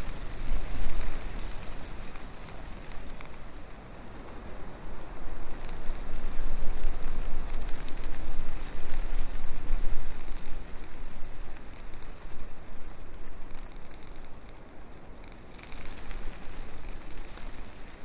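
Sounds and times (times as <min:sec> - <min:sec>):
wind noise on microphone: 0:00.0 - 0:14.3.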